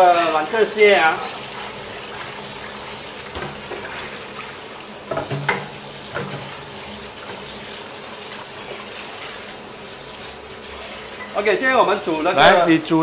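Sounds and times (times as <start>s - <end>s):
tap water running into colander: 0.0s - 13.0s.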